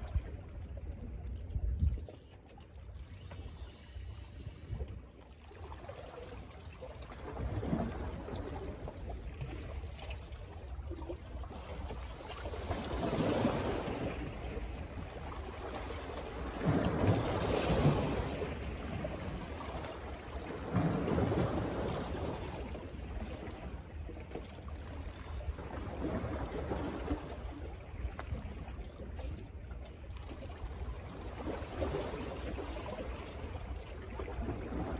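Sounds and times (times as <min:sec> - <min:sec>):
wind rumble on microphone: 0:00.0 - 0:02.3.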